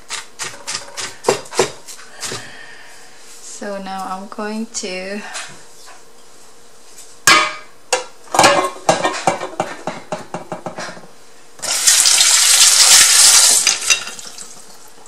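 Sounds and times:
dishes and utensils knocking: 0:07.3 - 0:11.0
kitchen tap running: 0:11.6 - 0:15.0.

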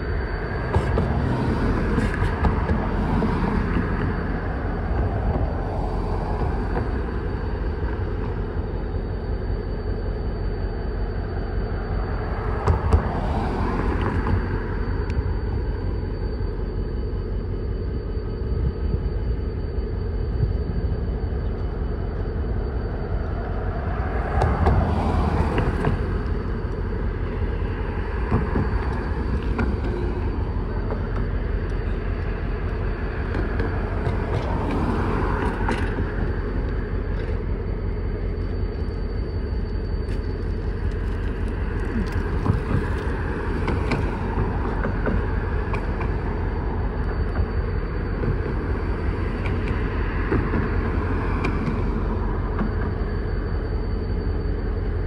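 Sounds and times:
freight train rumbling: 0:00.0 - 0:55.0
sharp clicks from rails: 0:24.3 - 0:37.5, 0:40.1 - 0:53.1.

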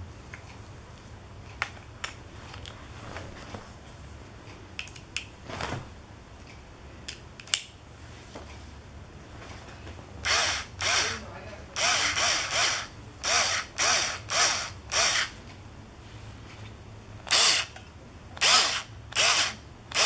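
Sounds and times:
screwdriver shaft scraping: 0:10.2 - 0:11.2, 0:11.8 - 0:15.4, 0:18.4 - 0:20.0
screwdriver bits clicking: 0:10.3 - 0:11.2, 0:11.8 - 0:15.3, 0:17.3 - 0:20.0.

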